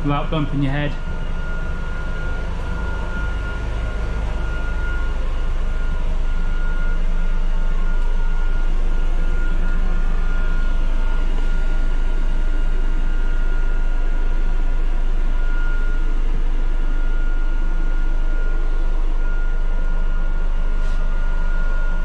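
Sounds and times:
bus engine idling: 0.0s - 13.0s
high-pitched engine whine: 0.0s - 22.0s.

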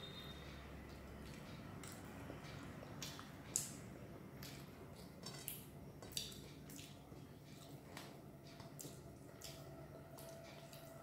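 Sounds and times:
chewing: 4.4s - 11.0s.

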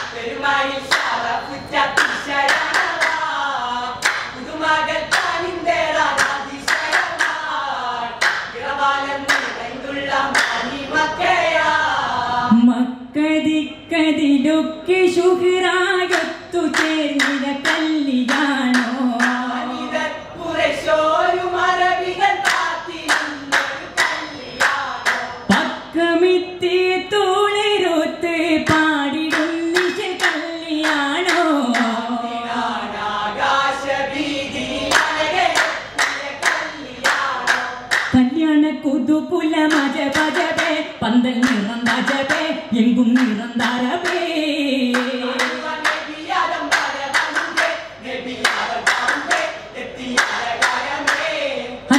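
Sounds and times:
rhythmic hand claps: 0.0s - 11.4s, 16.0s - 20.0s, 20.9s - 25.8s, 28.6s - 32.3s, 34.6s - 38.4s, 39.6s - 51.9s
men singing in unison: 44.9s - 51.9s.

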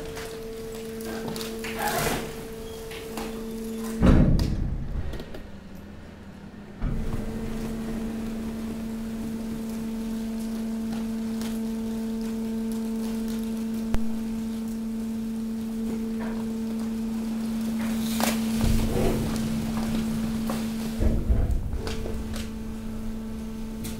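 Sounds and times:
hydraulic pump motor humming: 0.0s - 23.9s.

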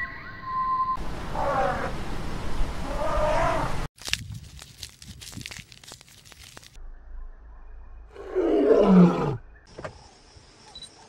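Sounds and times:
rough animal call: 2.8s - 3.9s.

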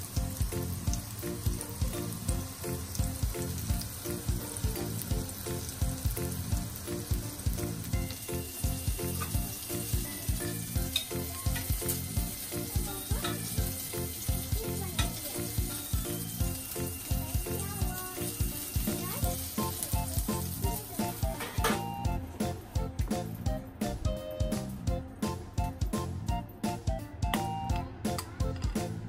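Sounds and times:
patties sizzling in oil: 0.0s - 28.2s
background music with steady beat: 0.0s - 29.0s.

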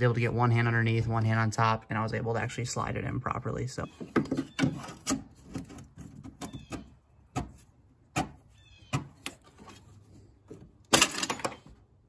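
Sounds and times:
clicks and knocks of metal parts: 10.8s - 11.8s.

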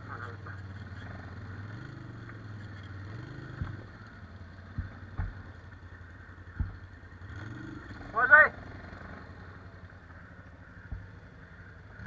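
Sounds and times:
quad engine running at low speed: 0.0s - 12.0s.

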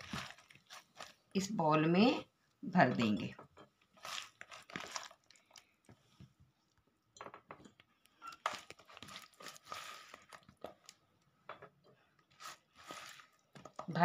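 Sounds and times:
soft scrapes and squelches: 8.7s - 11.0s, 11.9s - 13.9s.

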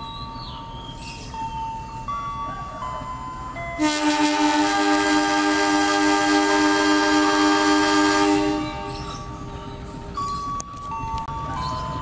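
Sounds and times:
locomotive air horn: 3.8s - 8.9s.

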